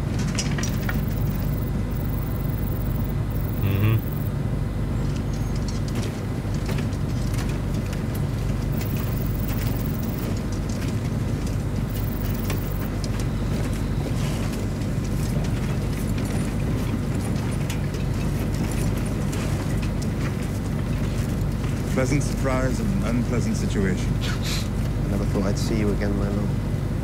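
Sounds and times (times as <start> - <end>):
steady low rumble: 0.7 - 4.3.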